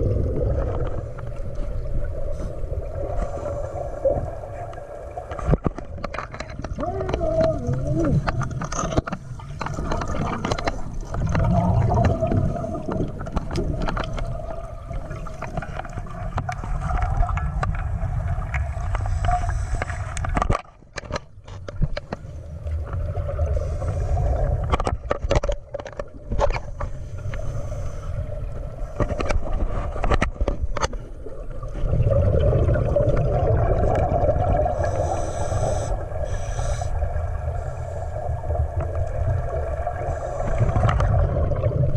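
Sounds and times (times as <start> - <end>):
low underwater rumble: 0.0 - 20.2
bubbling and gurgling air: 0.0 - 41.9
underwater clicks: 4.7 - 22.3, 24.6 - 27.5, 28.9 - 31.1, 40.7 - 41.8.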